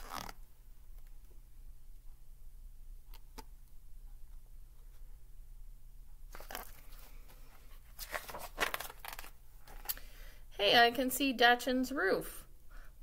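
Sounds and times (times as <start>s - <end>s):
low steady hum: 0.0s - 13.0s
paper page rustling: 6.3s - 9.9s.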